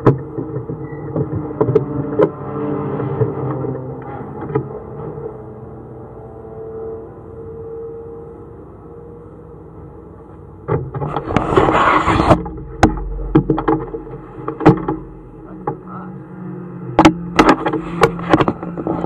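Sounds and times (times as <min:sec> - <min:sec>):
fabric rubbing on microphone: 0:11.1 - 0:12.4
knocks and clicks handling camera: 0:17.0 - 0:19.0.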